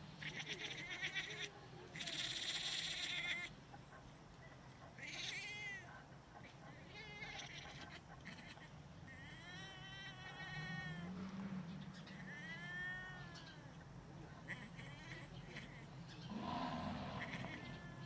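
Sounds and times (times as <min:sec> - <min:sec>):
cat yowling: 0:05.0 - 0:05.9, 0:07.0 - 0:11.2, 0:12.1 - 0:13.7, 0:16.9 - 0:18.0.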